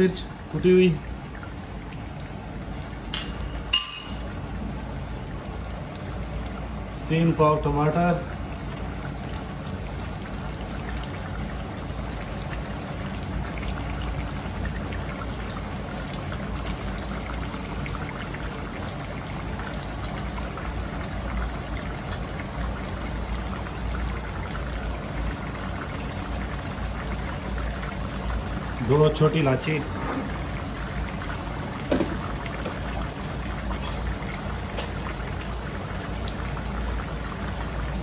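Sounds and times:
meat sizzling in hot oil: 8.4s - 38.0s.

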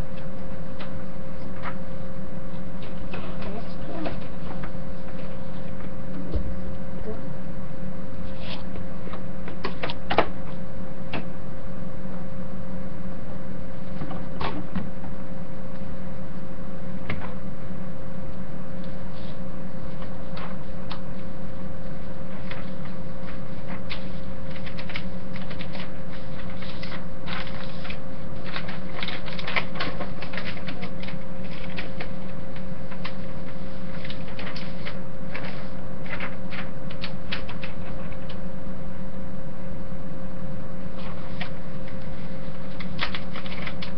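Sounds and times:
steady low hum: 0.0s - 43.9s
paper crackling and rustling: 18.8s - 38.5s, 41.0s - 43.9s.

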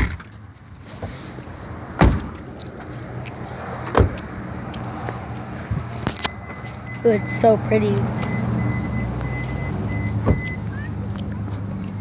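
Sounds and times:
car door thump: 2.0s - 2.4s, 3.9s - 4.2s.

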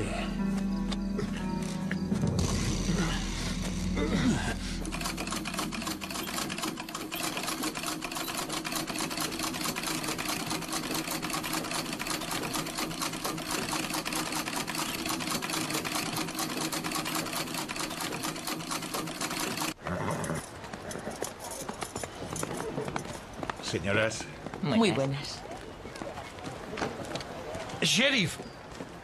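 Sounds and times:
sewing machine clatter: 4.9s - 19.8s.

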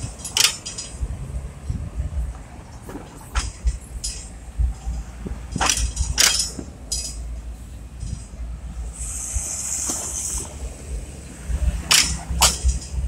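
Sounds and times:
sharp clanks: 0.0s - 1.1s, 2.3s - 10.6s, 11.8s - 13.0s
low street rumble: 0.0s - 13.0s
high hiss: 8.8s - 11.1s.

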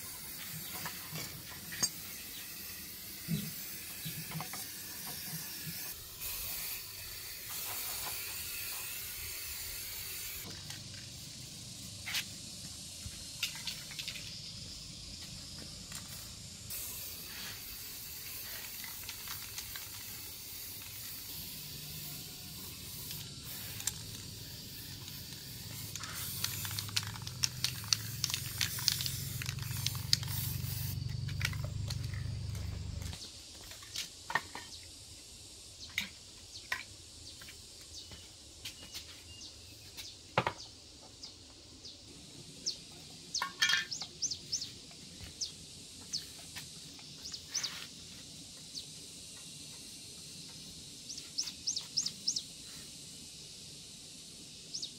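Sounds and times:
aerosol spray can hissing: 0.0s - 14.4s, 15.9s - 32.4s.

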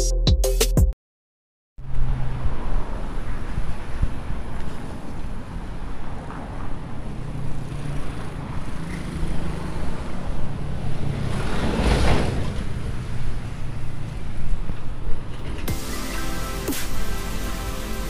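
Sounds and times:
vehicle passing close: 1.8s - 14.0s
road traffic rumble: 1.8s - 18.0s.

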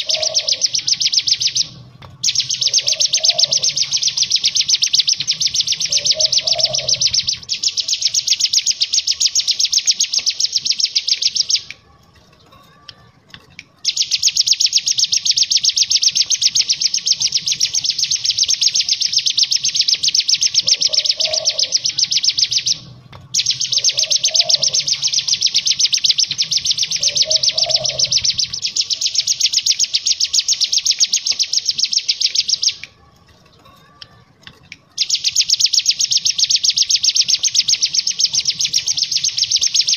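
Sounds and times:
bird chattering trill: 0.0s - 11.8s, 13.8s - 33.0s, 34.8s - 39.9s.

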